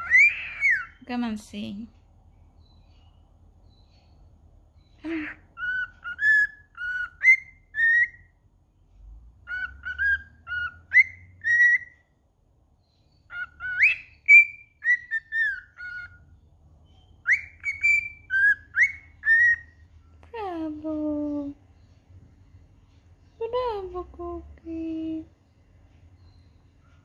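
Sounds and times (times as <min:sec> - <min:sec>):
cockatiel whistling: 0:00.0 - 0:01.0, 0:05.5 - 0:08.3, 0:09.4 - 0:12.0, 0:13.3 - 0:16.2, 0:17.2 - 0:19.8.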